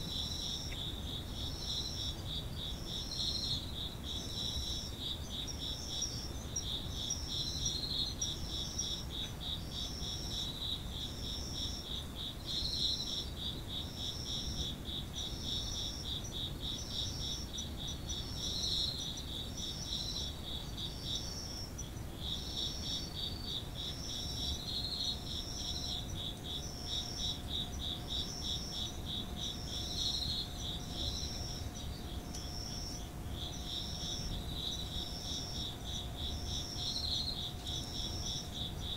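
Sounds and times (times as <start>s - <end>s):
insect fast pulsing trill: 0.0s - 38.9s
high-pitched insect chirps: 15.2s - 38.9s.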